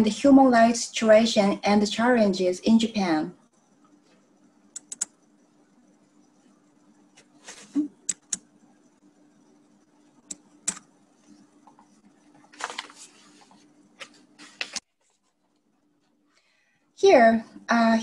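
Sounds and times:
faint steady hum: 0.0 - 18.0
computer mouse clicks: 4.7 - 5.2, 8.0 - 8.5, 10.2 - 10.9.

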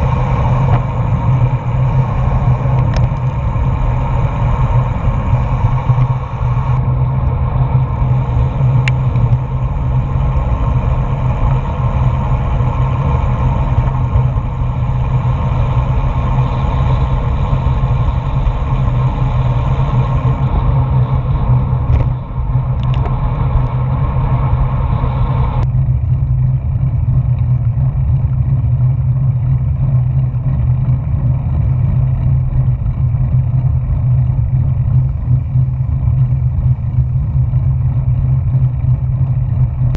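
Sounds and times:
wind rumble on microphone: 0.0 - 39.9.

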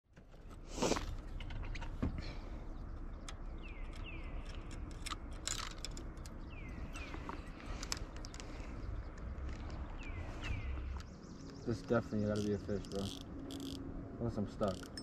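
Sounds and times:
fishing reel clicking and rattling: 3.9 - 6.3, 12.3 - 13.8, 14.6 - 15.0.

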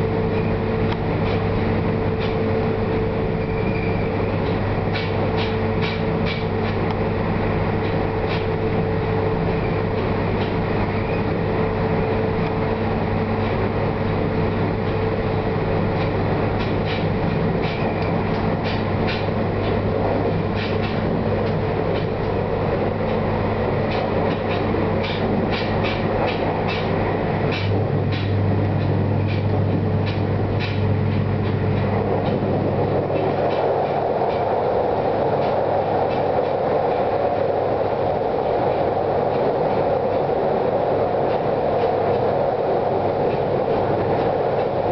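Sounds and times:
train rumbling on steel bridge: 0.0 - 44.9
train running hum: 0.0 - 44.9
wheels clicking over rail joints: 3.4 - 7.0, 15.8 - 44.9.

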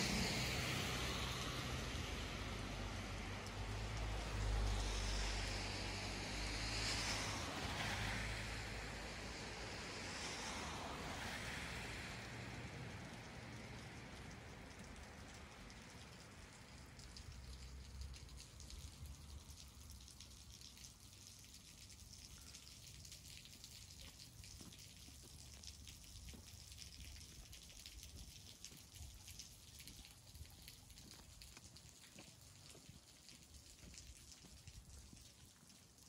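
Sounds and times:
light rain pattering: 0.0 - 36.0.

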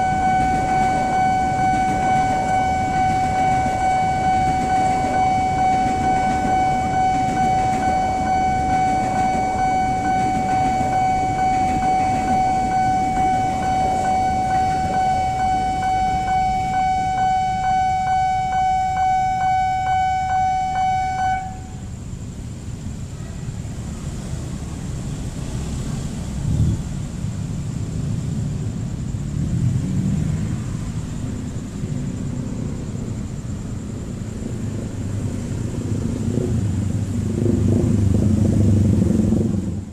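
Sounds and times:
level crossing warning bell: 0.0 - 21.8
low rumble of traffic: 0.0 - 39.9.

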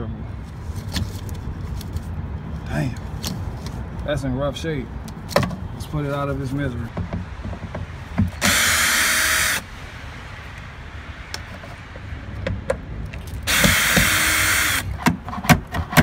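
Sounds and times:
cordless drill running: 8.4 - 9.6, 13.5 - 14.9.

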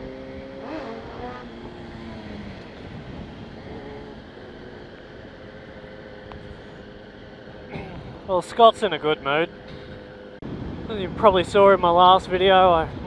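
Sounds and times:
motorcycle engine running: 0.0 - 10.4
wind and road noise: 0.0 - 13.0.

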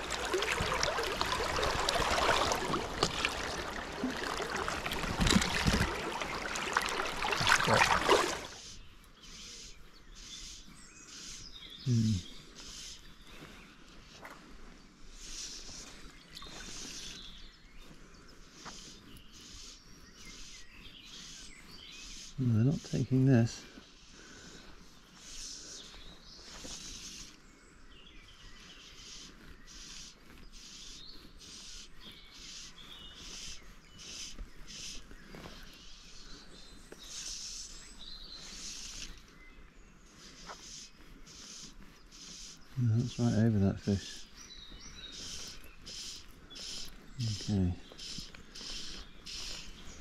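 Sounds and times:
low outdoor wash: 0.0 - 9.7
birds singing: 0.0 - 50.0.

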